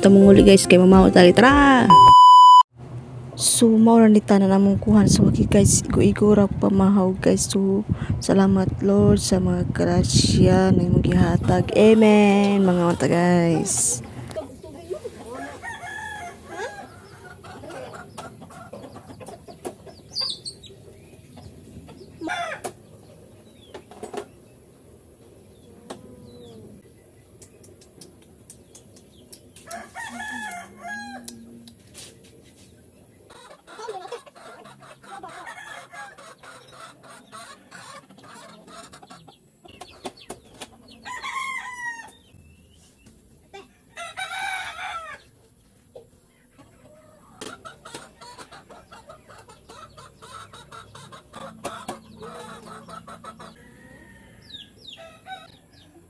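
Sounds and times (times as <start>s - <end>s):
chickens clucking: 9.9s - 56.0s
rooster crowing: 15.4s - 17.0s, 29.7s - 31.4s, 41.0s - 42.2s, 43.8s - 45.3s, 53.6s - 55.5s.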